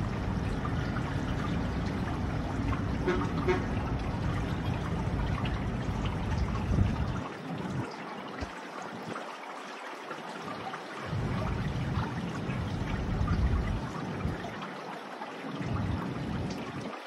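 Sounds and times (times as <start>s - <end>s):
heavy low rumble: 0.0s - 7.2s, 11.1s - 14.4s
wind buffeting microphone: 0.0s - 9.2s, 11.1s - 14.6s.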